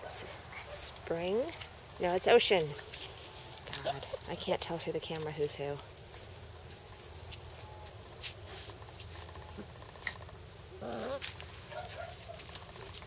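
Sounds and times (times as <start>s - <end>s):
rustling on grass: 0.0s - 13.0s
puppy vocalization: 9.5s - 12.1s.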